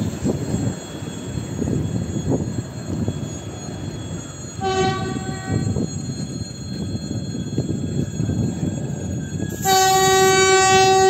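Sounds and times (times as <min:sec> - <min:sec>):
train wheels rumbling and clicking: 0:00.0 - 0:11.0.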